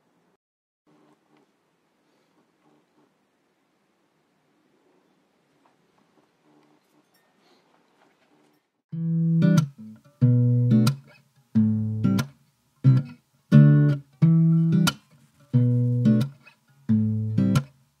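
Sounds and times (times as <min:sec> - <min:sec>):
guitar plucked chords: 0:08.9 - 0:17.8.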